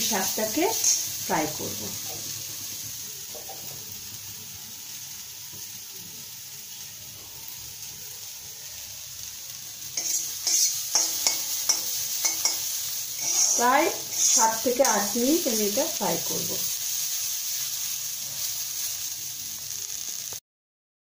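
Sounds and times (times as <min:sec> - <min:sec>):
leaves sizzling in oil: 0:00.0 - 0:20.4
spatula scraping pan: 0:10.0 - 0:15.2.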